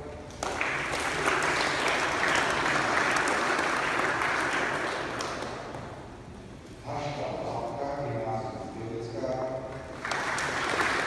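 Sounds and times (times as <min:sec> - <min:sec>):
audience applauding in echoing hall: 0:00.3 - 0:06.0, 0:09.8 - 0:11.0.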